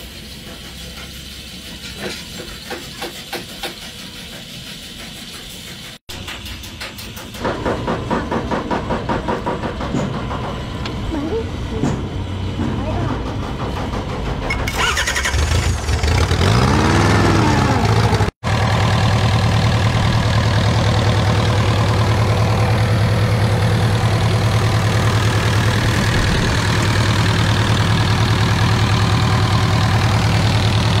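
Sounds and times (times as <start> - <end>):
diesel engine throbbing: 7.3 - 31.0.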